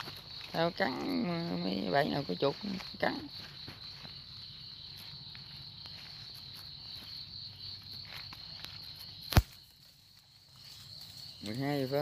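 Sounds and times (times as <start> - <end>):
footsteps rustling through brush: 0.0 - 12.0
insects trilling: 0.0 - 12.0
sharp click: 9.3 - 9.6.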